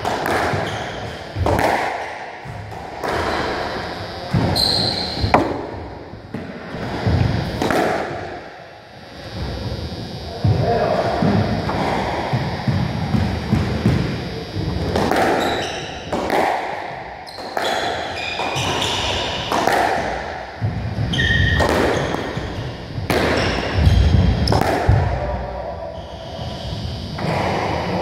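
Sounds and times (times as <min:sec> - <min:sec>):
squash ball cracking off walls: 0:06.3 - 0:08.4, 0:14.9 - 0:16.8, 0:17.4 - 0:20.4, 0:23.1 - 0:25.2.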